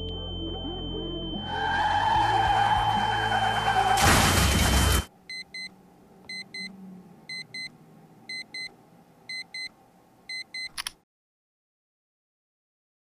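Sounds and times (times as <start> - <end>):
smartphone alarm beeping: 0.0 - 1.6, 5.3 - 7.7, 8.3 - 8.7, 9.3 - 10.9
loud noise: 1.4 - 5.1.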